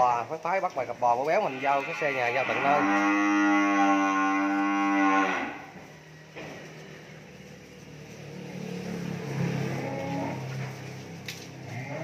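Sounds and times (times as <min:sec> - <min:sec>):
cattle mooing: 0:01.3 - 0:05.8, 0:09.3 - 0:10.6, 0:11.6 - 0:12.0.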